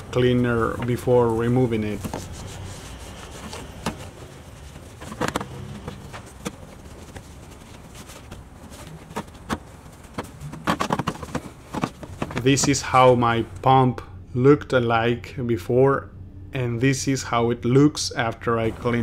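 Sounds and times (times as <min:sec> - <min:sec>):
rag scrubbing plastic: 0:00.0 - 0:12.8
low steady hum: 0:00.0 - 0:19.0.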